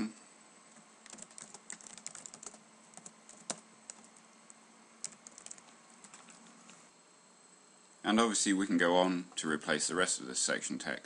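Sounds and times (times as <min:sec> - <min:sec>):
typing on a keyboard: 0:01.0 - 0:04.2, 0:05.0 - 0:06.8.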